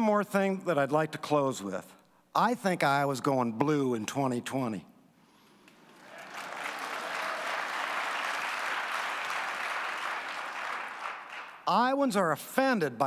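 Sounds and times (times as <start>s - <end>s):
audience applauding: 5.8s - 11.6s.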